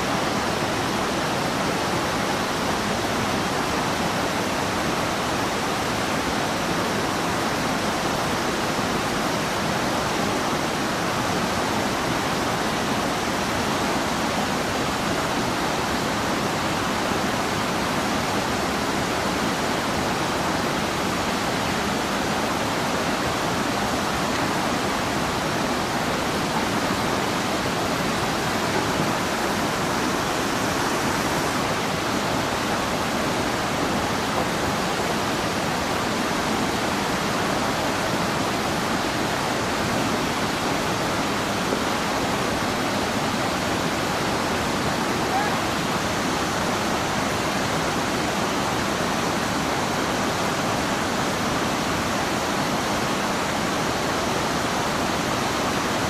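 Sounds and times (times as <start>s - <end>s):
water rushing over rocks: 0.0s - 56.0s.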